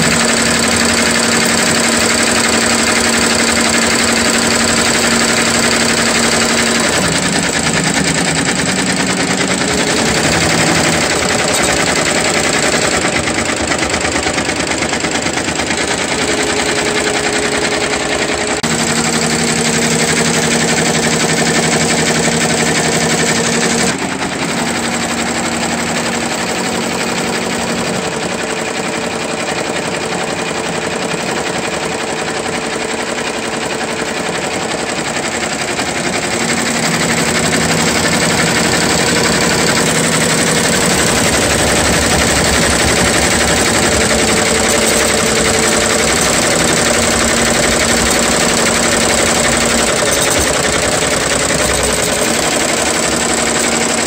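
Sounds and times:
embroidery machine needle clatter: 0.0 - 54.0
motor hum: 34.8 - 54.0.

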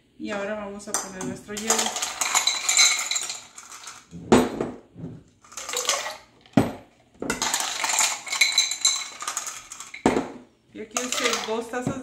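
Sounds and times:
ice cubes clattering: 1.5 - 4.1, 5.4 - 6.7, 7.3 - 10.3, 10.9 - 11.7.

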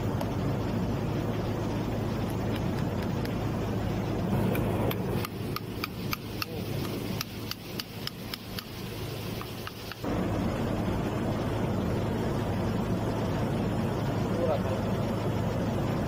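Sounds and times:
sharp metallic ticks: 4.5 - 10.1
low rumble: 8.8 - 16.0.

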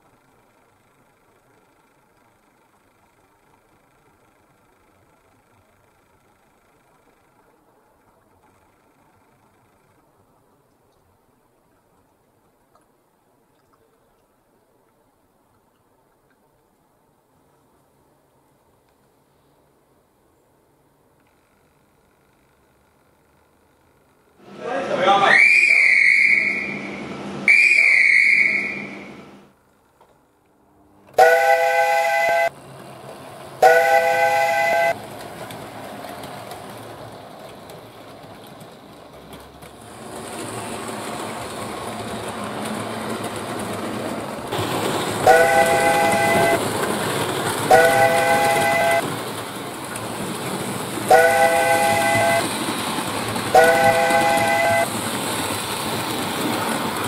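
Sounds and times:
train running noise: 0.0 - 12.1, 16.8 - 57.0
steam locomotive chime whistle: 25.2 - 29.4, 31.2 - 32.5, 33.6 - 35.0, 45.2 - 46.6, 47.7 - 49.0, 51.1 - 52.5, 53.6 - 54.9
high single-note whistle: 25.3 - 29.2.

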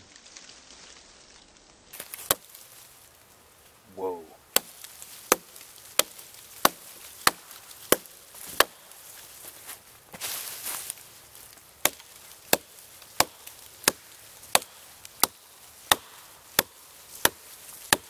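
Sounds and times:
hatchet chopping into log: 2.0 - 2.5, 4.5 - 8.8, 11.8 - 18.0.

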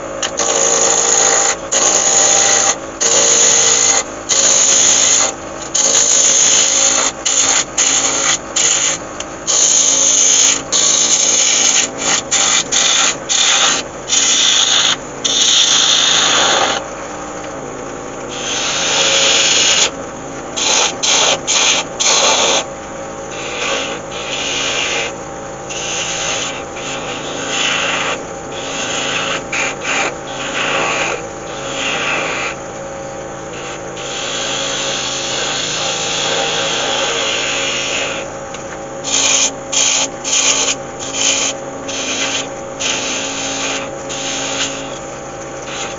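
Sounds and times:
lathe tool scraping wood: 0.0 - 17.0, 18.2 - 32.8, 33.5 - 38.4, 39.0 - 45.9
lathe motor hum: 0.0 - 45.9.

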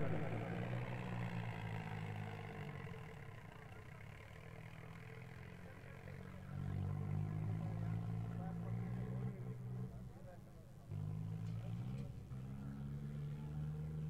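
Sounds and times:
tractor diesel engine running: 0.0 - 6.0.

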